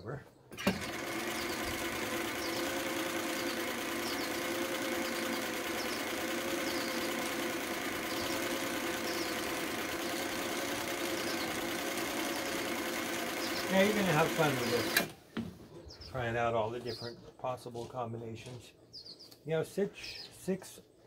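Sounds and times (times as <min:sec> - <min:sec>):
sewing machine running: 0:00.6 - 0:15.1.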